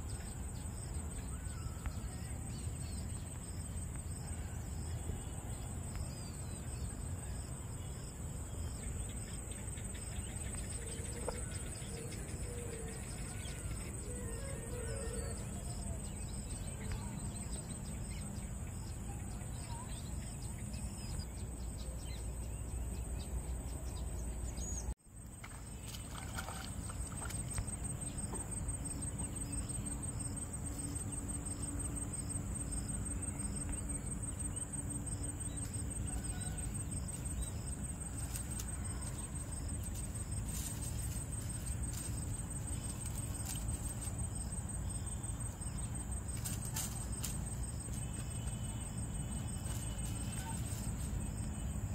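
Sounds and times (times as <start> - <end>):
faint bird chirps: 8.6 - 24.9.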